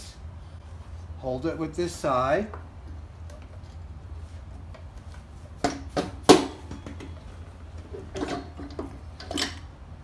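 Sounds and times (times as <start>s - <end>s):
metal clicks and knocks: 5.6s - 9.7s.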